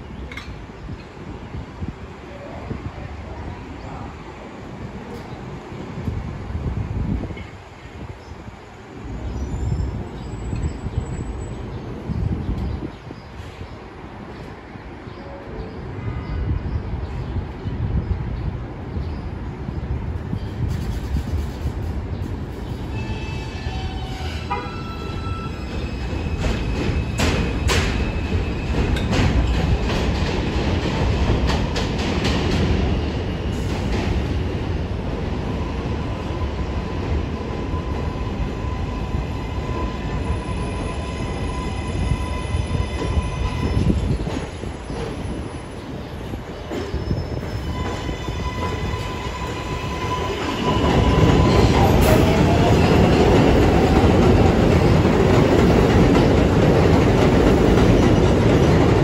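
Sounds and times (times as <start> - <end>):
train wheel rumble: 19.6 - 59.0.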